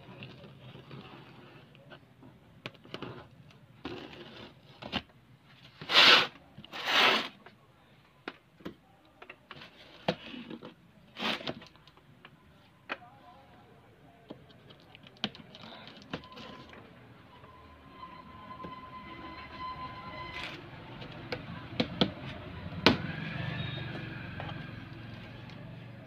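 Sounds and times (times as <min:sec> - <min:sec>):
packing tape ripping: 0:05.8 - 0:07.3.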